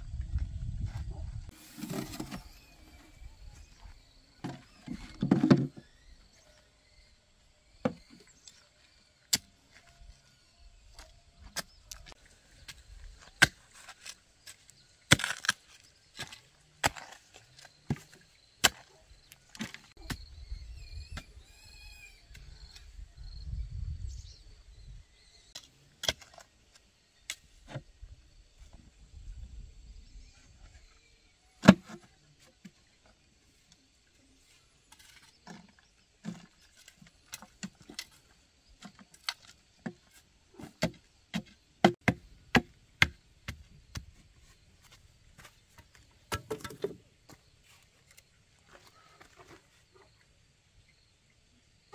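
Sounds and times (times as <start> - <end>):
digging tool striking stony soil: 12.7 - 20.3, 25.6 - 26.5, 31.6 - 32.0, 34.9 - 44.1, 45.4 - 47.1.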